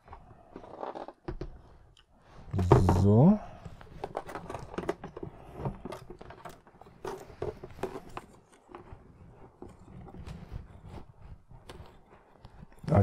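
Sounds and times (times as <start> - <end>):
plastic helmet knocks and scrapes: 2.6 - 13.0.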